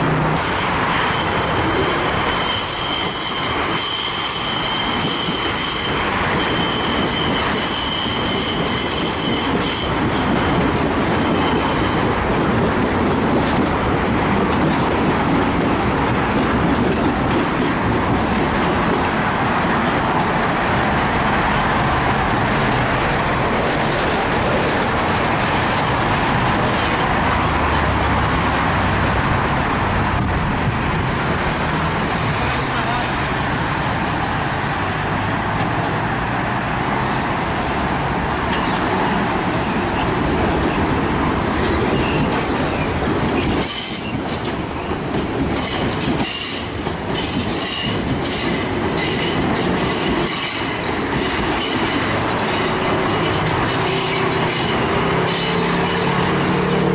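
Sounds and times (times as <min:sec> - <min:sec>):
train rolling: 0:00.0 - 0:56.9
rail wheels squealing: 0:00.4 - 0:12.1, 0:37.2 - 0:40.8, 0:41.6 - 0:56.9.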